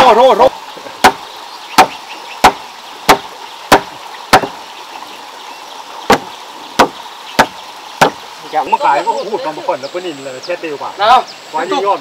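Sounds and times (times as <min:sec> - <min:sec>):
hammer striking wood: 0:01.8 - 0:04.6, 0:06.1 - 0:08.2.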